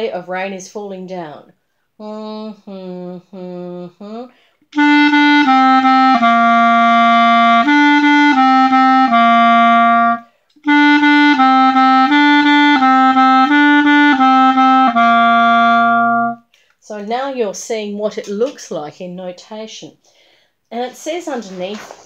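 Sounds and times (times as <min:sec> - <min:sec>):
clarinet playing simple melody: 0:04.7 - 0:16.5.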